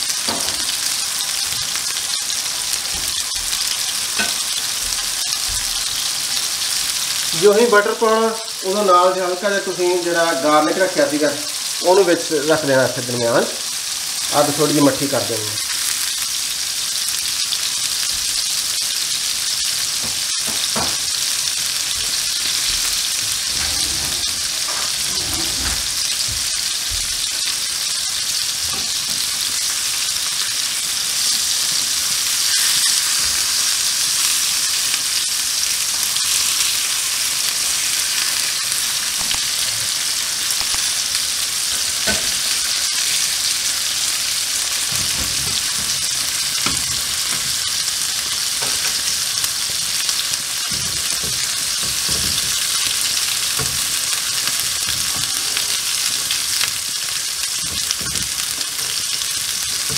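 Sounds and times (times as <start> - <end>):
patties sizzling in a grill pan: 0.0 - 59.9.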